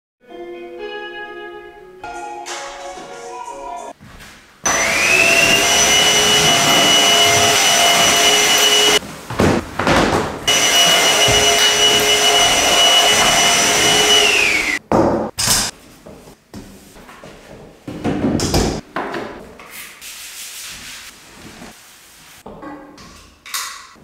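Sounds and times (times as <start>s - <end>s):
vacuum cleaner motor whine: 4.7s - 9.0s, 10.5s - 14.8s.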